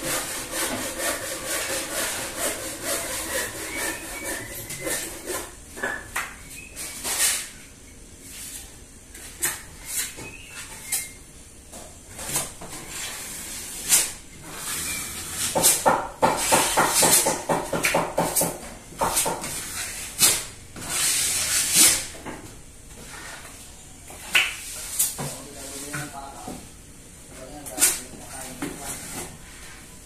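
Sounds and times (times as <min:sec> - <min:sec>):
hand tools knocking and scraping: 0:14.4 - 0:21.0.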